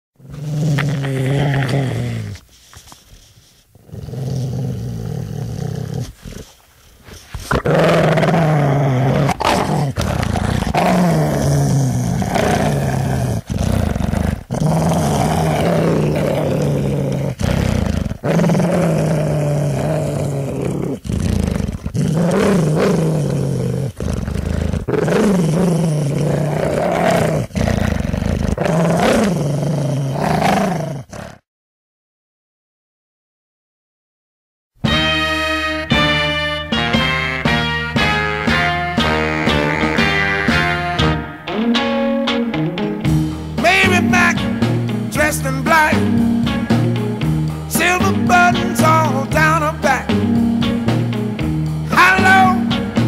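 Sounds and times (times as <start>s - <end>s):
deep growling and snarling: 0.2s - 2.4s, 3.8s - 6.5s, 7.5s - 31.4s.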